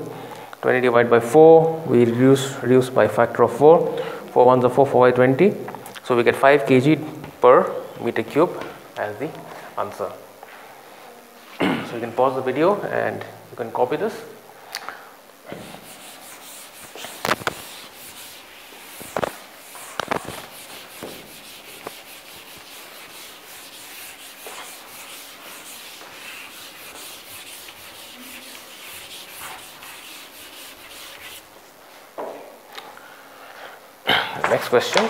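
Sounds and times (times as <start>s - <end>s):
eraser rubbing on chalkboard: 15.4s - 31.5s.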